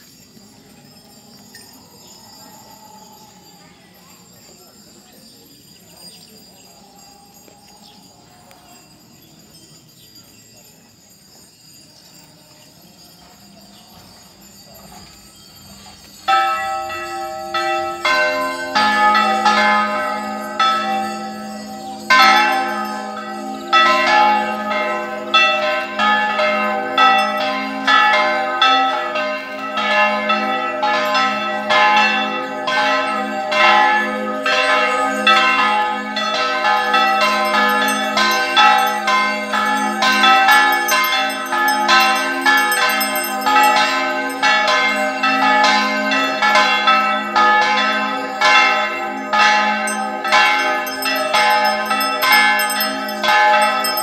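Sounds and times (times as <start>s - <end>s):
church bells ringing: 14.0s - 54.0s.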